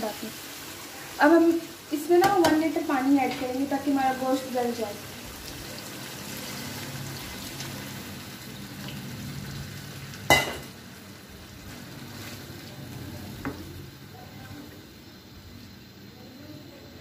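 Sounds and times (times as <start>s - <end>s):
meat sizzling in a wok: 0.0s - 17.0s
water pouring into a wok: 2.7s - 14.0s.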